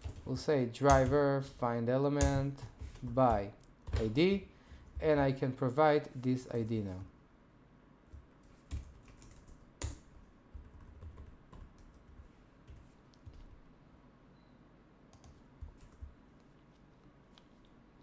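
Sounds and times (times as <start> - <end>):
computer keyboard typing: 8.1 - 13.5, 15.1 - 16.1.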